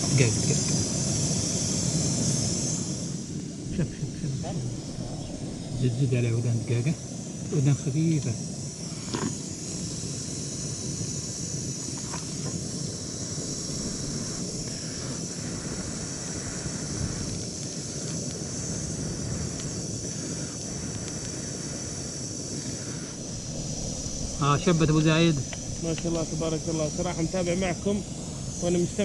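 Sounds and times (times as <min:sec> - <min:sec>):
high insect drone: 0:00.0 - 0:29.0
wind rumbling on microphone: 0:00.0 - 0:29.0
faint clicks: 0:20.6 - 0:21.4.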